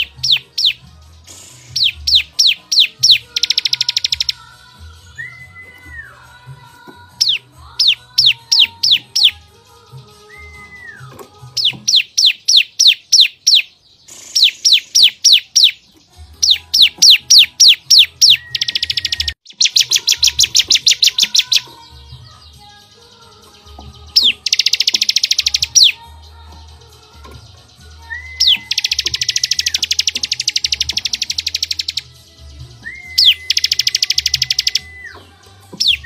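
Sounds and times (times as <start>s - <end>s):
fast buzzing bird trill: 0.0s - 4.5s, 7.2s - 9.6s, 11.6s - 22.1s, 22.7s - 36.0s
sharp down-slurred whistled notes: 10.2s - 15.8s, 16.4s - 21.7s, 27.8s - 32.1s, 32.7s - 36.0s.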